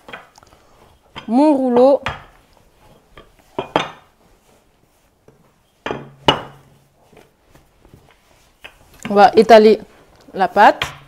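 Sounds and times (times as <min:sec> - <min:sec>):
rolling pin knocking on stone countertop: 0:02.0 - 0:02.3, 0:05.8 - 0:06.6.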